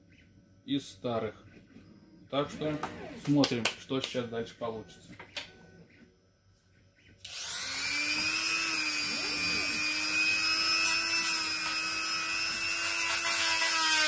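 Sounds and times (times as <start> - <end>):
rotary tool high-pitched whine: 2.3 - 3.6, 7.2 - 14.0.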